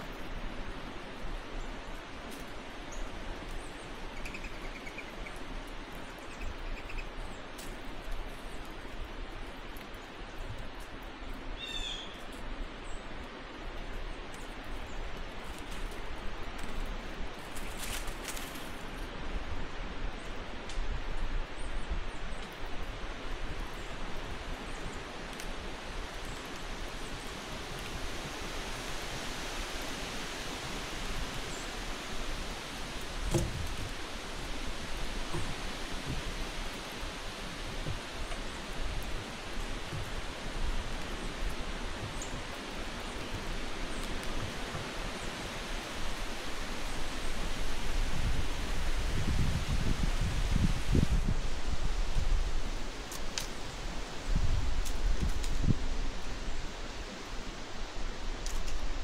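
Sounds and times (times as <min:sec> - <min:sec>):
rushing outdoor noise: 0:00.0 - 0:59.0
rustles and clicks: 0:13.3 - 0:19.2, 0:50.5 - 0:59.0.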